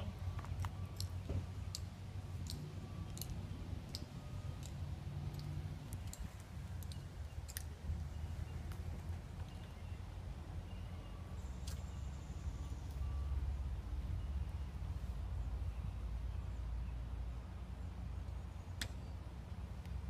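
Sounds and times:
hard-soled footsteps on pavement: 0.2s - 1.6s.

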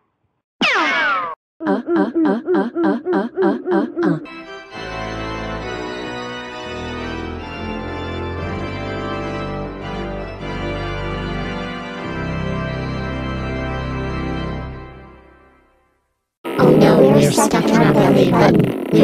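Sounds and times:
wobbling cartoon sound effect: 0.6s - 4.3s
organ playing held chords: 4.3s - 15.5s.

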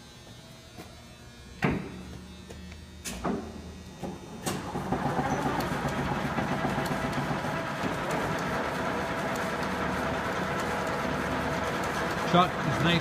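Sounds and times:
lathe mechanical hum: 0.0s - 13.0s.

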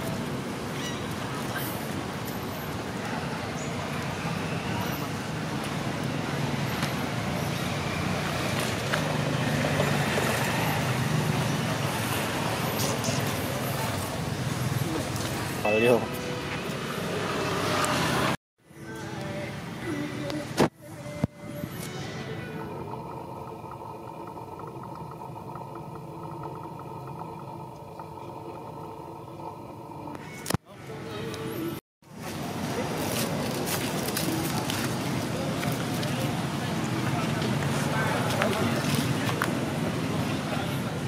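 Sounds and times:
engine humming: 19.1s - 41.0s.

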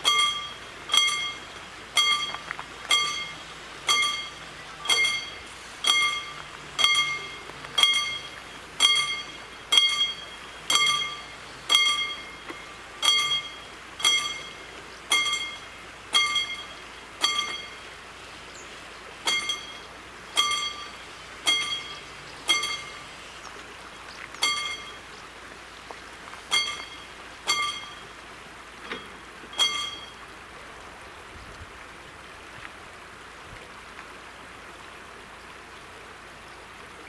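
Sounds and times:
level crossing warning bell: 0.0s - 18.0s, 19.2s - 23.2s, 23.9s - 25.2s, 26.5s - 30.3s.

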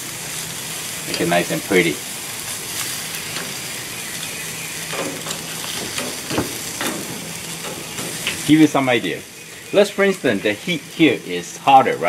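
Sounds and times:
meat sizzling on grill: 0.0s - 12.0s
metal tongs clicking on grate: 2.8s - 3.6s, 4.9s - 8.5s.

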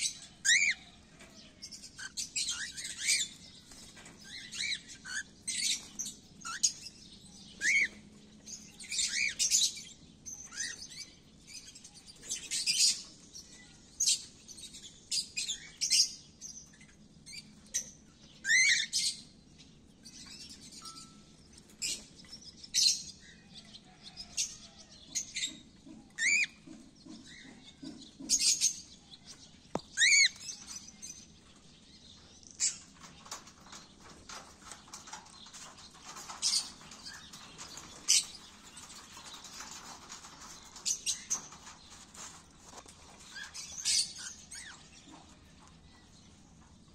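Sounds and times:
cockatiels chirping: 26.2s - 26.6s.

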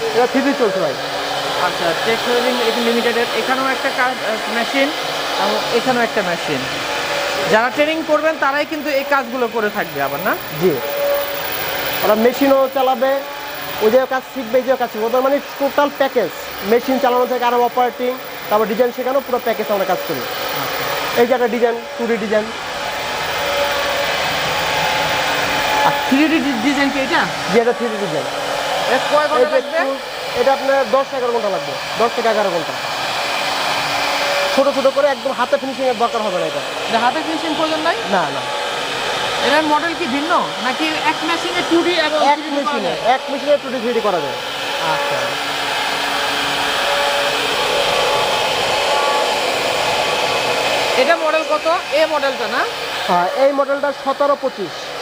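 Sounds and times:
router spindle whirring: 0.0s - 55.0s.

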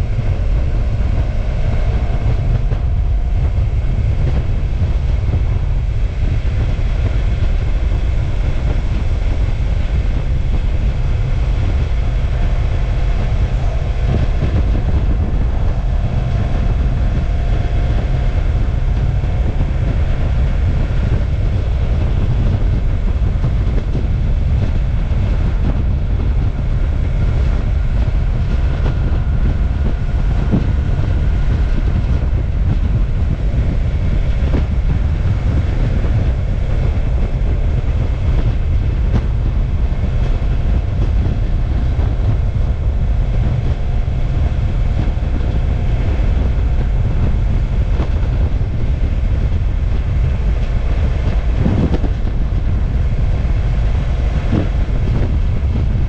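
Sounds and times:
motorcycle engine rumbling: 0.0s - 56.0s.

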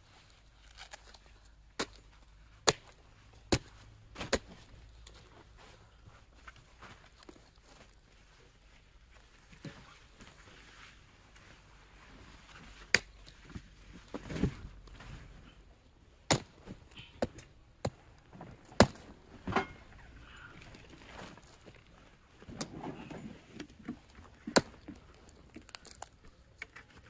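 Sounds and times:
dry wood cracking and snapping: 17.2s - 19.2s, 23.6s - 27.0s.

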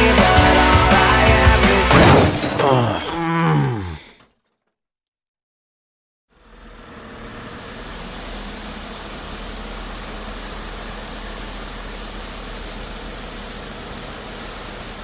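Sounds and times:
steam hissing: 7.1s - 15.0s.

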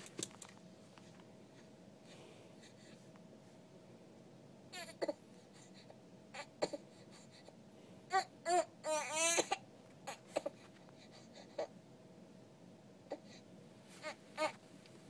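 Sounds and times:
baby crying: 8.1s - 10.5s.

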